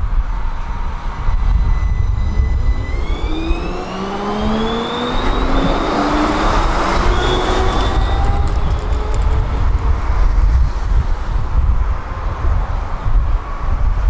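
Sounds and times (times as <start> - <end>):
tram motors whining: 0.0 - 11.3
wheels rolling on rails: 0.4 - 11.5.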